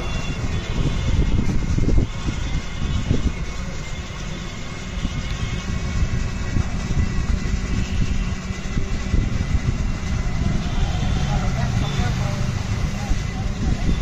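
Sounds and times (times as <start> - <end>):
low rumble of traffic: 0.0 - 14.0.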